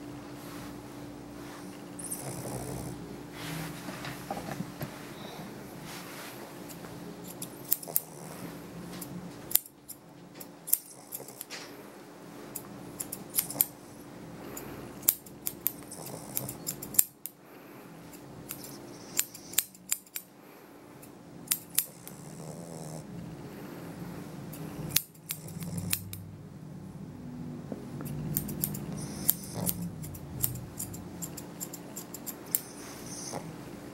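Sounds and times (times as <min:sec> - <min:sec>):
faint steady hum: 0:00.0 - 0:33.9
grooming shears snipping: 0:06.7 - 0:08.3, 0:08.9 - 0:11.7, 0:12.5 - 0:13.8, 0:14.5 - 0:17.4, 0:18.1 - 0:20.3, 0:21.5 - 0:22.2, 0:24.5 - 0:26.2, 0:28.0 - 0:33.5.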